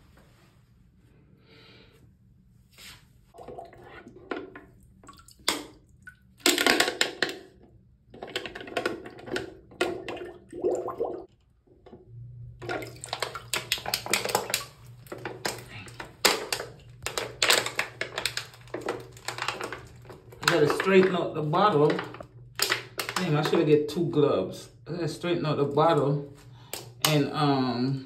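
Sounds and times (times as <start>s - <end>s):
water gurgling into bottle: 3.4s - 4.2s, 8.2s - 11.3s.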